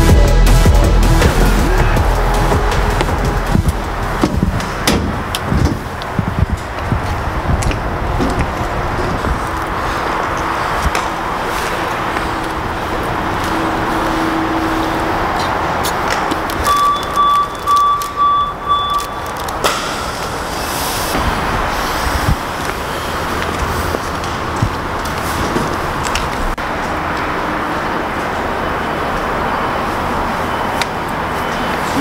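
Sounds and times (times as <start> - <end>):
outdoor background noise: 1.3 - 32.0
high electronic beeps: 16.5 - 21.2.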